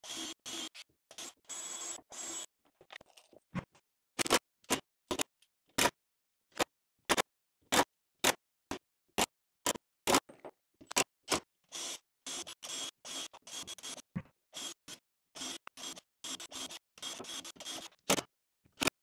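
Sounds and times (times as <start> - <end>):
cordless drill driving screws: 15.4 - 17.9.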